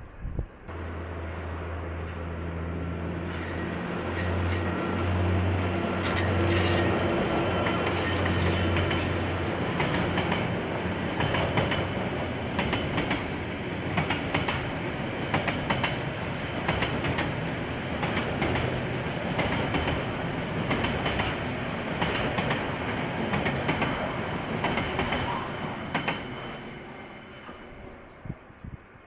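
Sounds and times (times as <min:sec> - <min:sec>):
train wheels rumbling on rails: 0:00.0 - 0:29.0
wheels clicking over rail joints: 0:11.1 - 0:17.4, 0:18.0 - 0:21.4.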